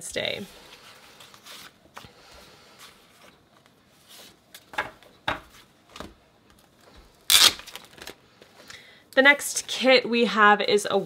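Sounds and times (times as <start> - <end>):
sharp paper handling sounds: 7.3 - 8.2.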